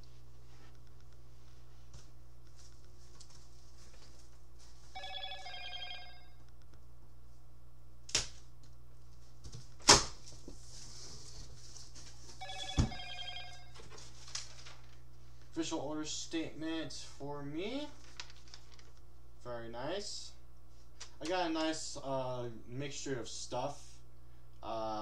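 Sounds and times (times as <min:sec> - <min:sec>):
steady electrical hum: 0:00.0 - 0:25.0
electronic ringing tone: 0:04.9 - 0:06.4, 0:12.4 - 0:13.8.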